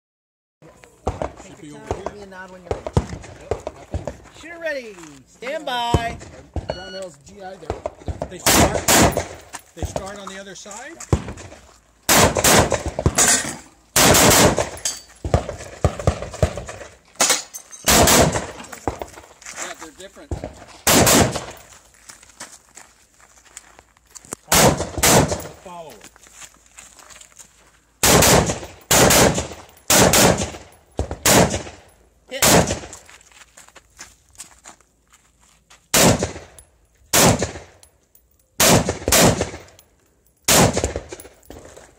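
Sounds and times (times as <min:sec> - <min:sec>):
rifle gunfire: 0:07.7 - 0:09.4, 0:12.1 - 0:13.4, 0:14.0 - 0:16.8, 0:17.9 - 0:18.6, 0:20.8 - 0:21.6, 0:24.5 - 0:25.6, 0:28.0 - 0:31.8, 0:32.4 - 0:32.9, 0:35.9 - 0:37.8, 0:38.6 - 0:39.7, 0:40.5 - 0:41.4.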